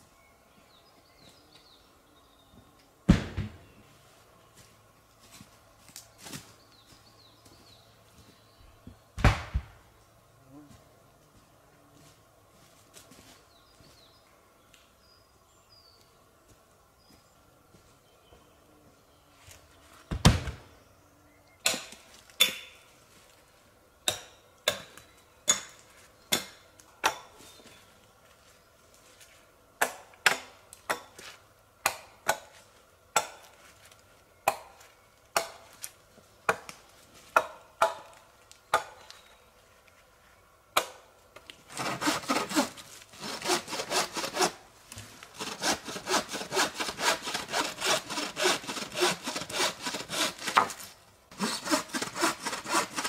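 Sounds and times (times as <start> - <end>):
hand saw cutting wood: 41.7 - 44.6, 45.3 - 53.0.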